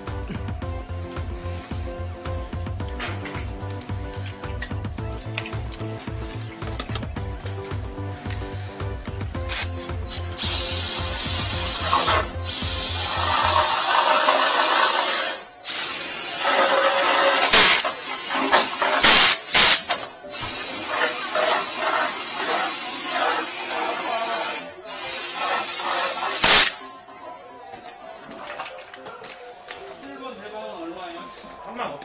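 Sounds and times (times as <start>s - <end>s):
cordless drill whining: 9.5s - 26.8s.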